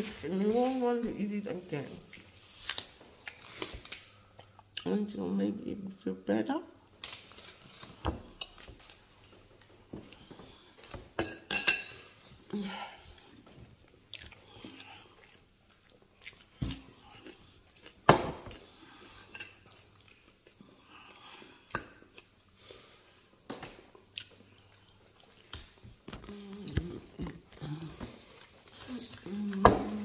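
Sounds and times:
person chewing: 2.0s - 4.9s, 13.0s - 30.0s.

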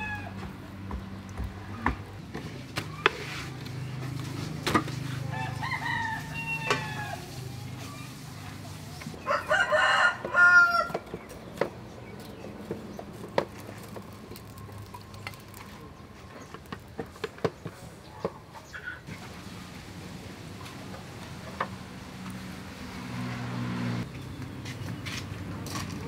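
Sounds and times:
rooster crowing: 0.0s - 0.5s, 5.2s - 7.4s, 9.2s - 11.0s
faint chicken calls: 0.0s - 1.0s, 5.0s - 8.4s, 9.0s - 11.7s.

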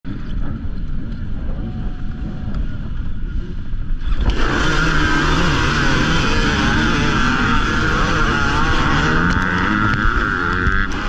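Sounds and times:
dirt bike engines rumbling: 0.1s - 11.0s
dirt bikes revving loudly: 4.0s - 11.0s.

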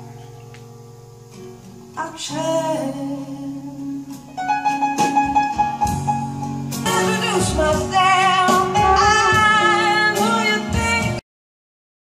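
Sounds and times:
person singing with vibrato: 1.9s - 5.6s, 6.7s - 11.2s
struck instrumental notes: 4.1s - 11.2s.

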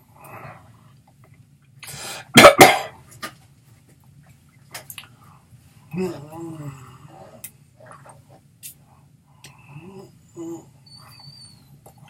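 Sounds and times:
person coughing: 2.3s - 3.0s.

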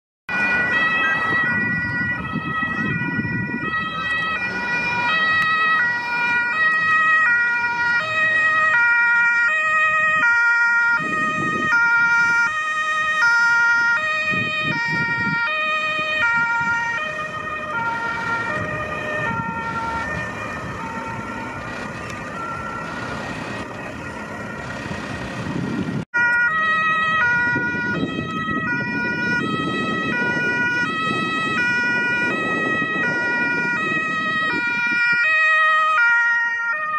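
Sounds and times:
passing road traffic: 0.3s - 36.9s
two-tone ambulance siren: 0.3s - 36.9s.

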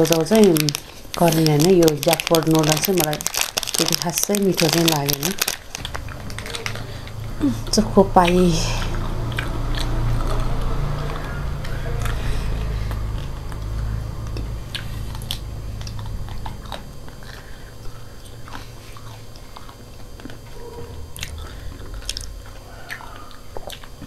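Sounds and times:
people chewing food: 0.0s - 24.0s
wet mouth clicks and smacks: 12.8s - 17.5s.

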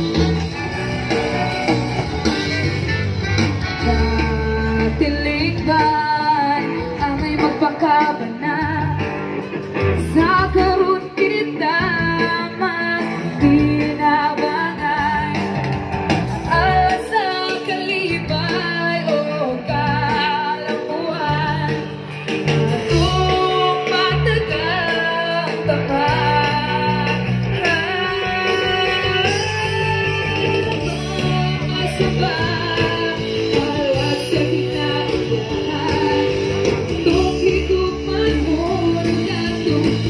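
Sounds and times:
pulsing bass line: 0.0s - 6.1s, 25.6s - 40.0s
guitar: 0.0s - 40.0s
person singing: 0.0s - 40.0s.

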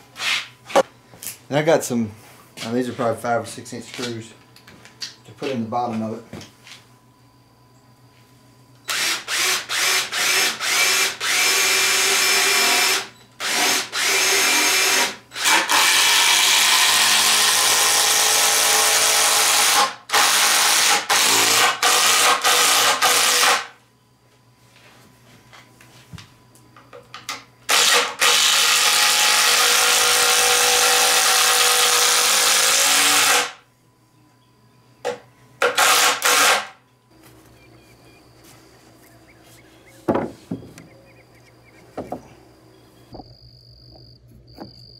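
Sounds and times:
cordless drill driving screws: 8.9s - 23.6s, 35.7s - 36.6s.

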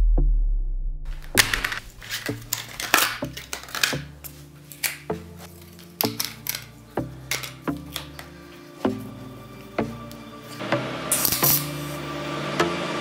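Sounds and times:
metal tools clanking on workbench: 5.6s - 8.2s.

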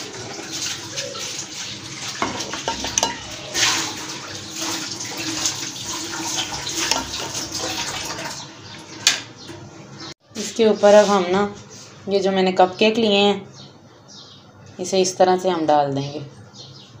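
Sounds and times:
ladle clinking on glass dish: 2.2s - 3.3s, 6.8s - 7.2s.

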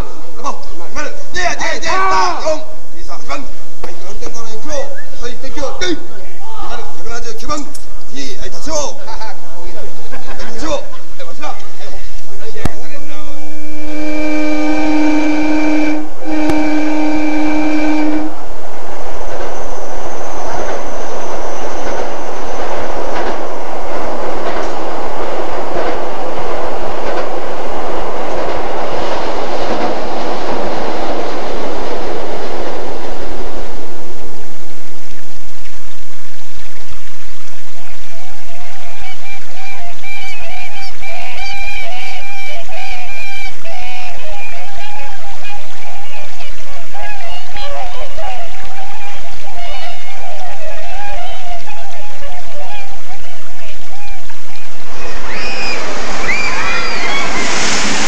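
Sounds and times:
train wheel and motor noise: 9.0s - 58.0s
wavering pitched sound: 13.1s - 34.1s, 38.5s - 58.0s
train horn blasts: 13.4s - 18.5s, 39.8s - 54.2s.

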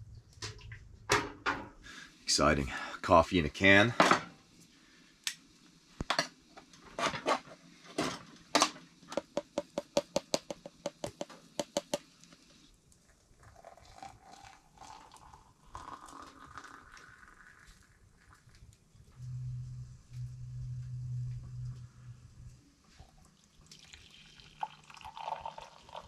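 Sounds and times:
grounds tapped out of tin: 9.1s - 12.1s
hot water pouring: 11.0s - 18.9s, 22.9s - 26.0s.

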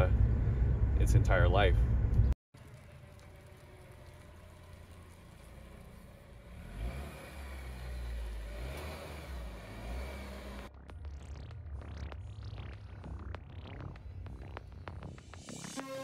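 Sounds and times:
car engine running: 0.0s - 15.8s
sound with rising and falling pitch: 6.6s - 16.0s.

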